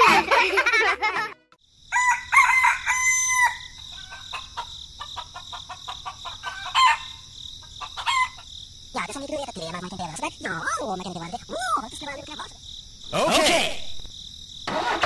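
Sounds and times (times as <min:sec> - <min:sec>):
rooster crowing: 0:01.9 - 0:04.8, 0:05.4 - 0:07.2, 0:07.8 - 0:08.4.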